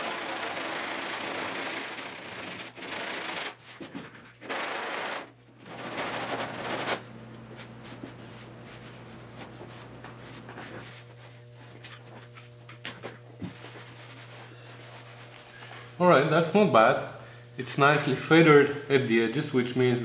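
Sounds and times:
sanding block rasping: 0.0s - 3.6s
low steady hum: 5.3s - 20.0s.

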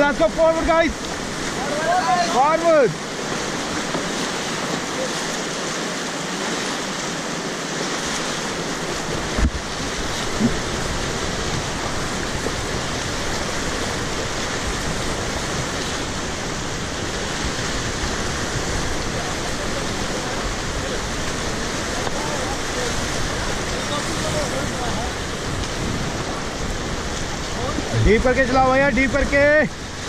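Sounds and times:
whitewater rushing: 0.0s - 30.0s.

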